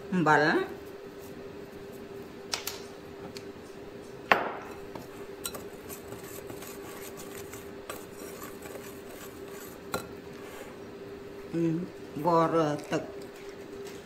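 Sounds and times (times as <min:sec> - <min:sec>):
steady low hum: 0:00.0 - 0:14.0
whisk stirring flour in bowl: 0:04.8 - 0:10.8
whisk clinking against glass: 0:05.4 - 0:10.1.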